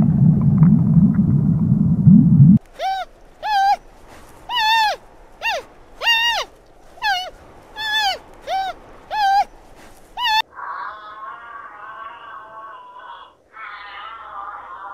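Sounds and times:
red panda squeaky calls: 0:02.6 - 0:10.4.

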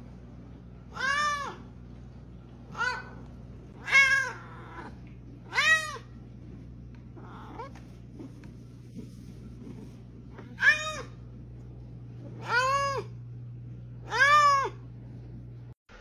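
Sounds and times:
cat meowing: 0:00.9 - 0:01.6, 0:03.8 - 0:06.1, 0:07.2 - 0:07.7, 0:10.4 - 0:11.2, 0:12.3 - 0:13.2, 0:14.0 - 0:14.8.

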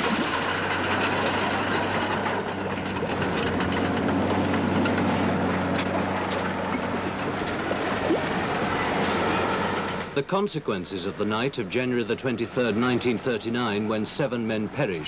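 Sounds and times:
water splashing: 0:00.0 - 0:02.0, 0:05.4 - 0:13.5
caterpillar tracks clanking: 0:00.0 - 0:15.0
tractor engine humming: 0:00.0 - 0:15.0.

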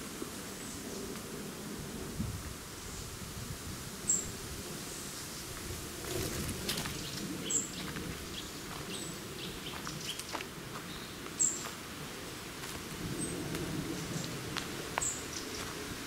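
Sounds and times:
footsteps on dry leaves: 0:05.5 - 0:16.0.

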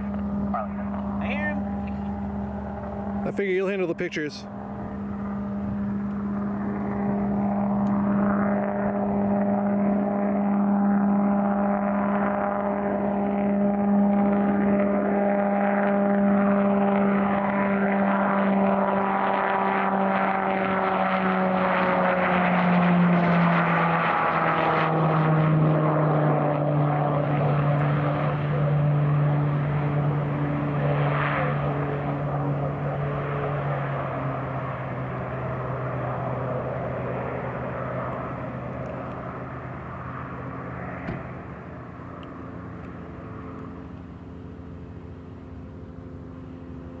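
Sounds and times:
turboprop propeller drone: 0:00.0 - 0:47.0.

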